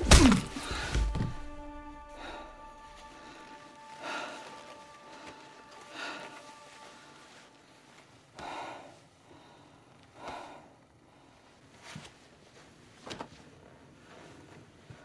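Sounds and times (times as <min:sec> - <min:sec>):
person gasping breaths: 0:02.0 - 0:11.5.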